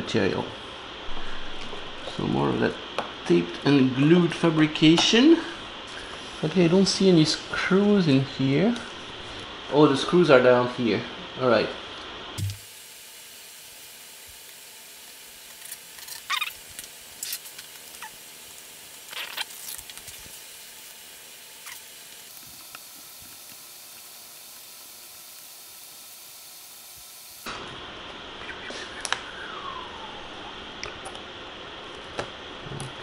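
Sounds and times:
steady hiss: 0:12.4 - 0:30.8.

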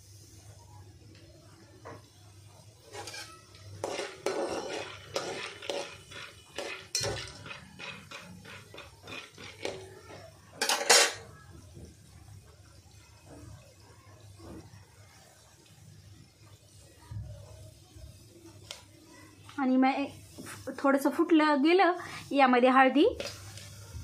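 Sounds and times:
metal spoon scraping a pot: 0:02.8 - 0:09.9.

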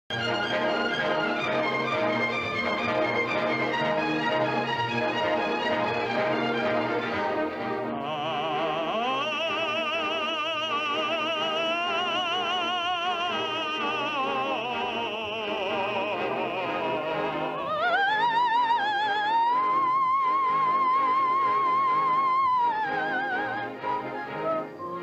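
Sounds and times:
instrumental accompaniment: 0:00.1 - 0:25.0
operatic soprano singing: 0:07.7 - 0:25.0.

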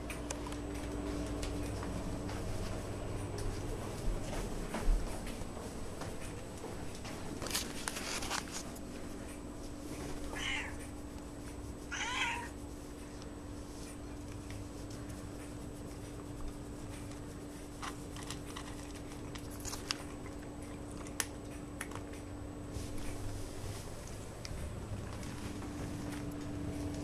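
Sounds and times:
cat meowing: 0:10.3 - 0:10.8, 0:11.9 - 0:12.5
cat eating dry kibble: 0:13.7 - 0:26.4.

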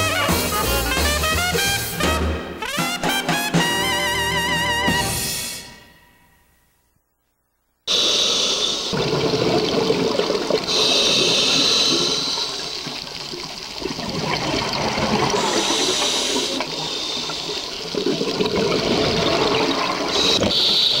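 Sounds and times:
regulator inhale hiss: 0:07.9 - 0:09.0, 0:10.7 - 0:13.0, 0:15.4 - 0:17.9, 0:20.1 - 0:21.0
exhaled bubbles rushing: 0:08.8 - 0:20.6.

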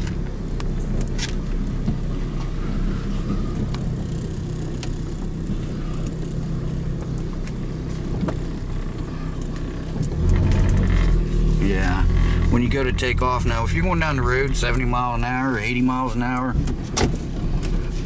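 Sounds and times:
truck engine running: 0:00.0 - 0:18.0.

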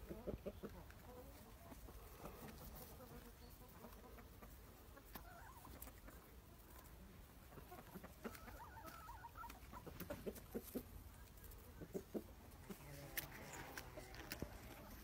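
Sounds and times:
chickens clucking softly: 0:00.0 - 0:15.0.

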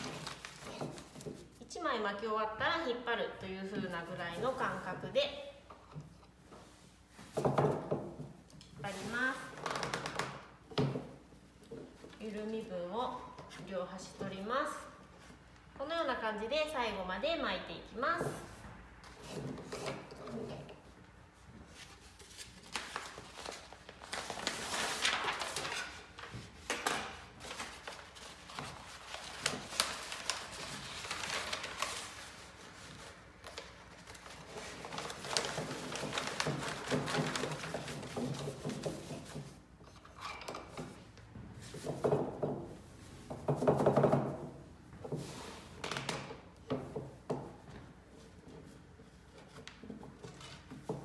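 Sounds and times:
paper and yarn rustling: 0:00.0 - 0:01.7, 0:03.8 - 0:05.4, 0:08.8 - 0:09.6, 0:21.6 - 0:40.1.

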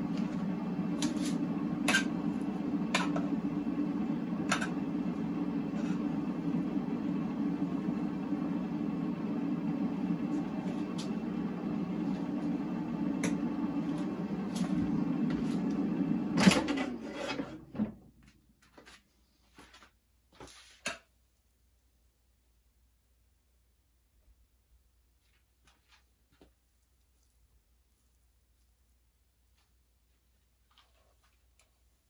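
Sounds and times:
appliance motor humming: 0:00.0 - 0:18.1.

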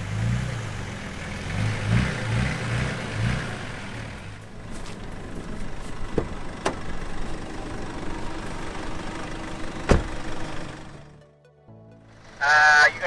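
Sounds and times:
car engine idling: 0:00.0 - 0:11.3
car door shutting: 0:06.1 - 0:06.9, 0:09.8 - 0:10.4.

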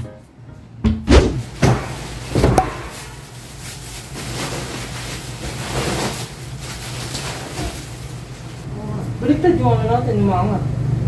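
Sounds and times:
foam sofa sections thudding: 0:00.8 - 0:03.2
plastic packaging rustling: 0:01.4 - 0:08.7.

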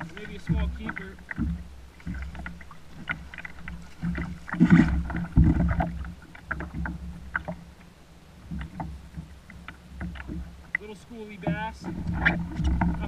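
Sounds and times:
water splashing against kayak hull: 0:00.0 - 0:13.0
dull thump: 0:04.0 - 0:07.1.

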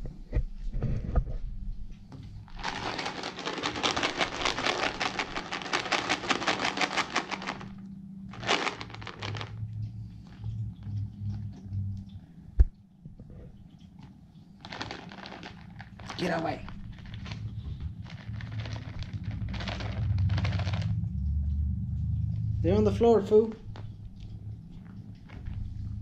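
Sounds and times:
cat treats rattling in plastic tub: 0:02.5 - 0:09.7, 0:14.6 - 0:21.1.

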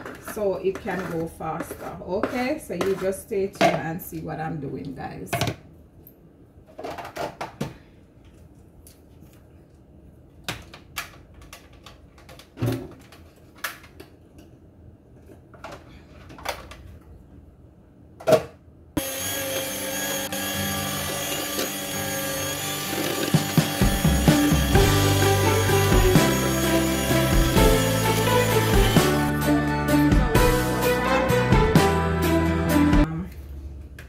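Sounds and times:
electric hand mixer running: 0:19.0 - 0:29.5.

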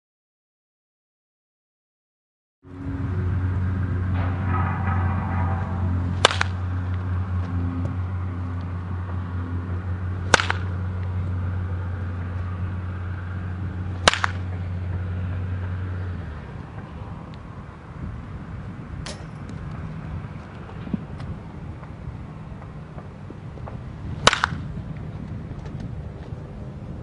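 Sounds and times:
steady low hum: 0:02.7 - 0:27.0
wooden bat hitting ball: 0:04.0 - 0:16.1, 0:19.0 - 0:19.9, 0:23.6 - 0:24.8.

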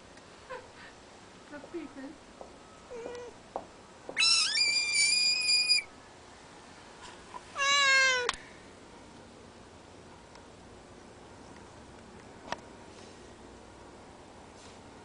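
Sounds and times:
frog distress scream: 0:04.2 - 0:05.9.

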